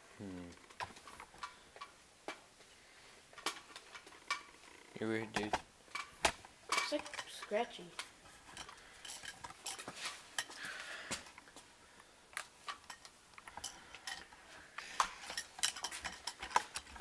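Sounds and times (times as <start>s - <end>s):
clicks and taps of handling: 5.3s - 11.5s.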